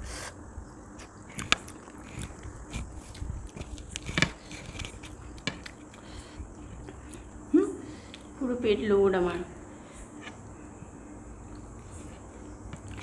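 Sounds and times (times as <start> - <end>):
chewing soft food: 1.0 - 8.4, 11.4 - 13.0.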